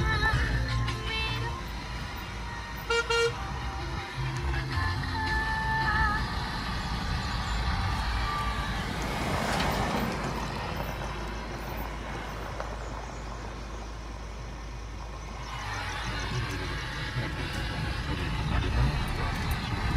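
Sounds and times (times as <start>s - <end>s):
car road noise rumble: 0.0s - 19.9s.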